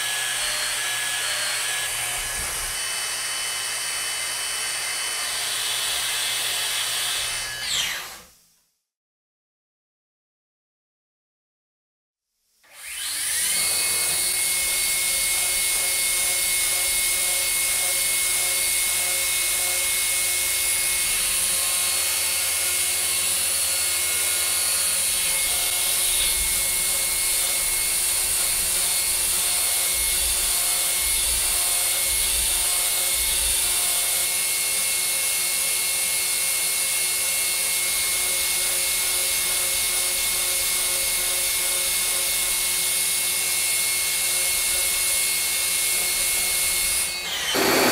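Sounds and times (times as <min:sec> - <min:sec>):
milling machine spindle whine: 0:00.0 - 0:06.6, 0:43.6 - 0:47.9.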